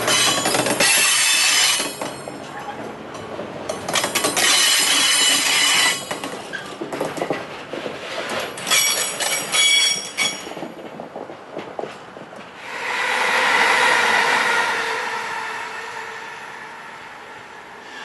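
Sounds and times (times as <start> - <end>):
train wheels screeching: 0.0 - 2.4, 3.9 - 6.8, 12.6 - 18.0
wagons rattling over rails: 0.0 - 12.6.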